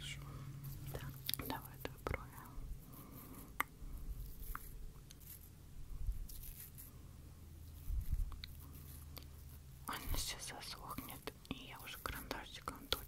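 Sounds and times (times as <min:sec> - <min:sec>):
makeup brush strokes: 0:00.0 - 0:13.0.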